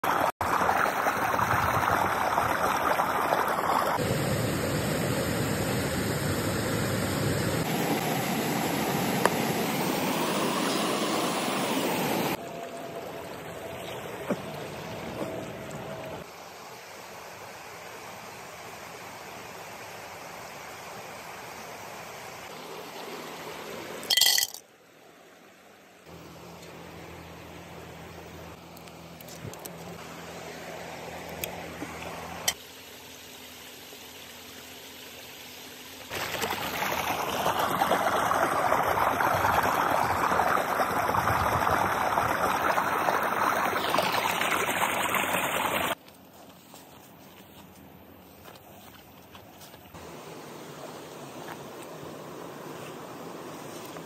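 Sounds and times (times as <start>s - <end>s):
stream water rushing over rock: 0.0s - 4.3s, 30.0s - 46.0s.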